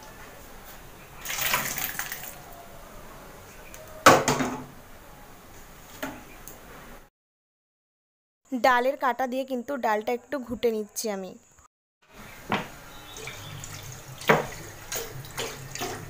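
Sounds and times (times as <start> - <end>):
liquid pouring and sloshing: 1.2 - 2.4, 13.0 - 16.0.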